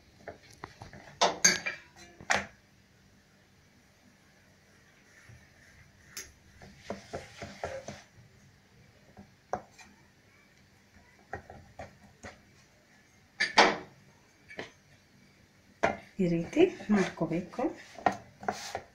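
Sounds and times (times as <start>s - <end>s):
dough handled on metal board: 5.0s - 8.2s, 15.8s - 18.9s.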